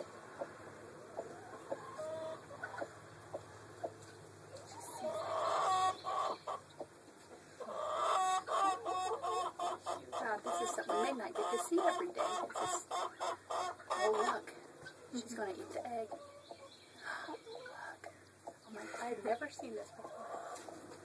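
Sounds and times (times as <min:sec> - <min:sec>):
chickens clucking: 0:00.0 - 0:21.0.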